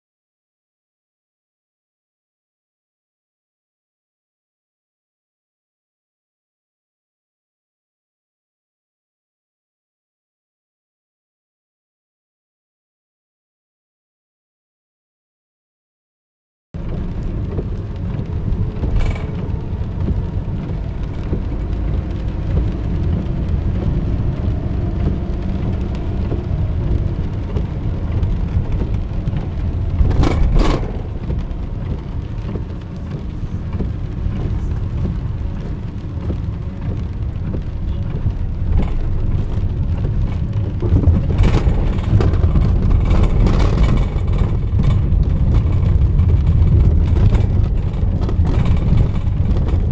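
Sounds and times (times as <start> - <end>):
engine and road rumble: 16.8 - 49.9.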